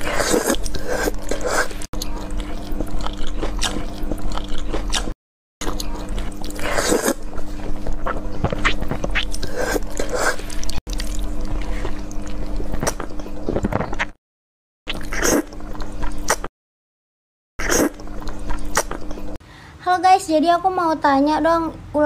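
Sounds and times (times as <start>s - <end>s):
person slurping noodles: 0.0s - 14.1s, 14.9s - 16.5s, 17.6s - 19.1s
biting and chewing: 0.0s - 14.2s, 17.6s - 19.3s.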